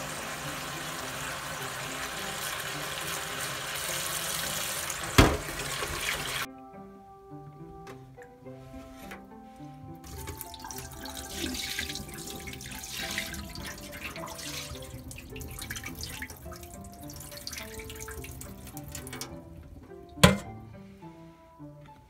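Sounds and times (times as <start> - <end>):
tap water splashing into bowl: 5.0 - 6.4, 10.1 - 19.4.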